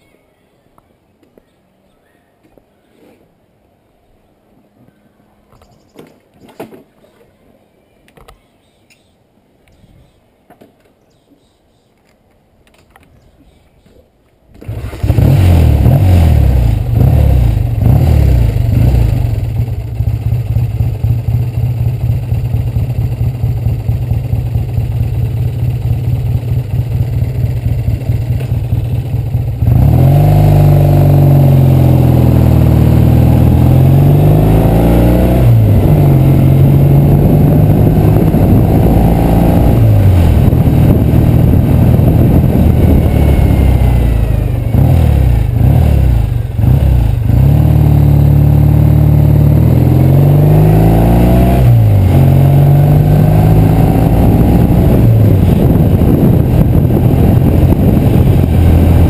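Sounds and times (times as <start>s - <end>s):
motorcycle accelerating away: 14.6s - 59.0s
motorcycle engine revving and idling: 14.6s - 59.0s.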